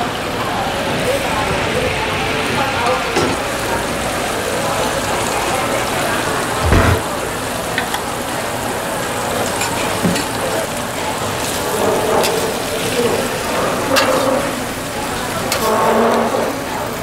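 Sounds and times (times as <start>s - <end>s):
dull thump: 6.6s - 7.0s.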